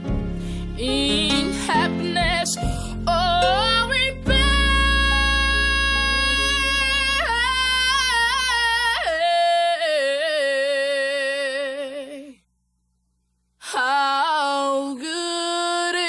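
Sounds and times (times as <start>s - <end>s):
held chord with deep bass: 0.0s - 8.7s
woman singing with vibrato: 0.8s - 12.4s, 13.6s - 16.0s.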